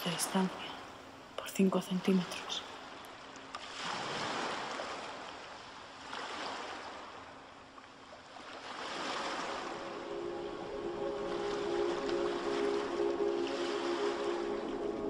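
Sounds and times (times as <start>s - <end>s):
rushing surf-like noise: 8.8s - 15.0s
sustained music notes: 9.3s - 15.0s.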